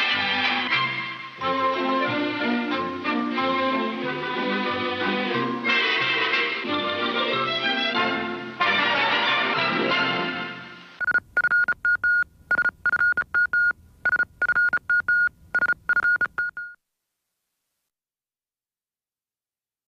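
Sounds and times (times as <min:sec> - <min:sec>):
high-pitched electronic beeps: 0:11.0 - 0:16.8.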